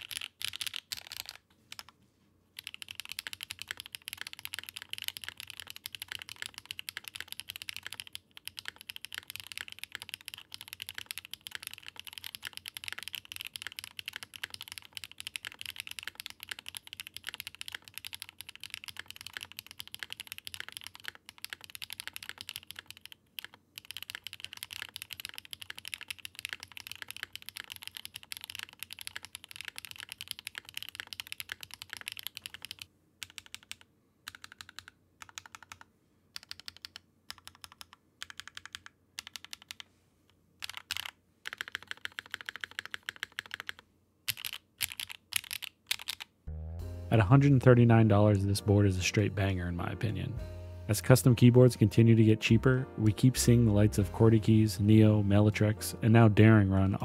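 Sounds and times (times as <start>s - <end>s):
fast typing on mechanical keyboard: 0.0s - 1.9s, 2.6s - 39.8s, 40.6s - 46.3s.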